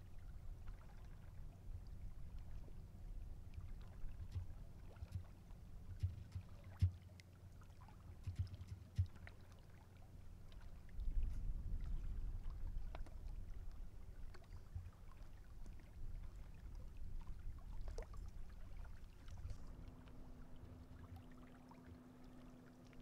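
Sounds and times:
small waves lapping: 0.0 - 23.0
wind rumble on microphone: 10.6 - 21.3.

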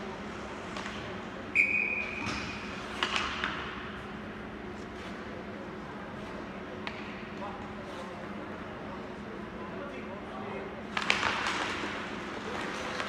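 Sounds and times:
referee's whistle blast: 1.6 - 2.2.

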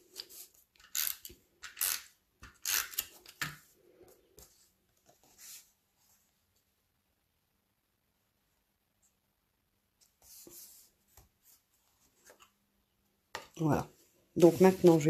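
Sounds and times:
paper sliding and rustling: 14.4 - 15.0.

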